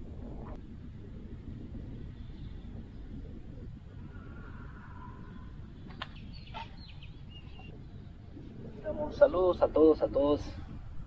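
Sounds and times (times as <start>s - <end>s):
low rumbling outdoor background: 0.0s - 11.0s.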